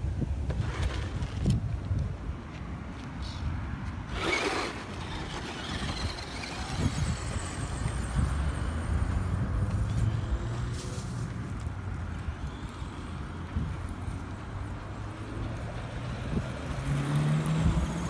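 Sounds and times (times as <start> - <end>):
tyres scuffing dirt: 0.4 - 8.3, 9.0 - 12.3
toy truck motor rumble and whine: 4.1 - 9.1.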